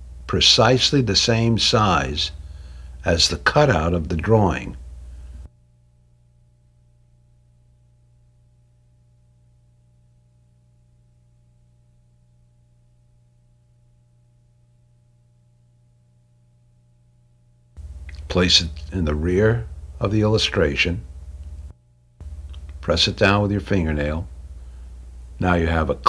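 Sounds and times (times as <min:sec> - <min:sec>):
low hiss: 0:00.0 - 0:06.1, 0:17.8 - 0:26.0
faint steady hum: 0:00.0 - 0:26.0.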